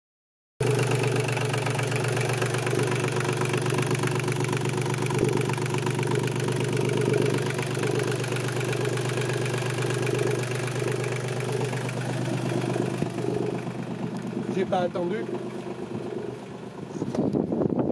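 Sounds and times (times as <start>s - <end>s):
diesel engine idling: 0.6s - 17.6s.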